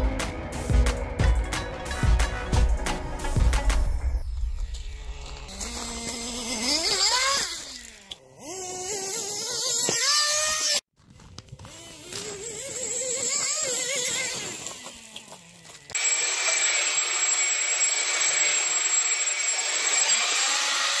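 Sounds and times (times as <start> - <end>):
electric motor whining: 4.6 - 10.8, 11.6 - 21.0
rc car engine revving: 4.9 - 10.8, 11.7 - 16.9.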